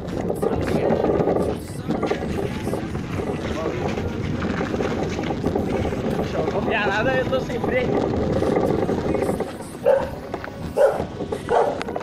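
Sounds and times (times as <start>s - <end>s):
steady background noise: 0.0s - 12.0s
dog barking: 9.8s - 11.9s.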